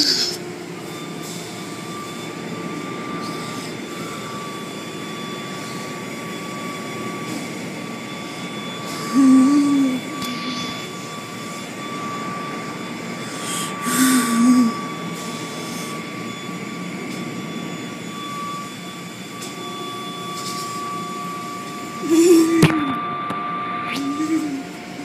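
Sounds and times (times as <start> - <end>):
constant machine whine: 0.0 - 25.0.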